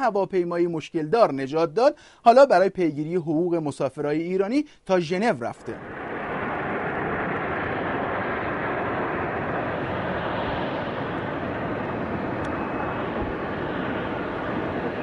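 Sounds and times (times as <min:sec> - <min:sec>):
jet airliner rolling on runway: 0:05.8 - 0:15.0.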